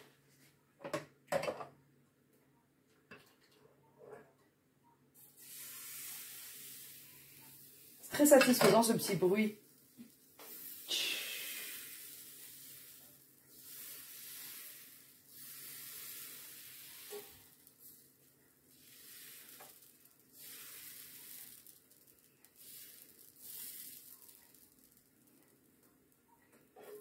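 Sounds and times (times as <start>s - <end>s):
batter sizzling on hot plate: 5.2s - 26.2s.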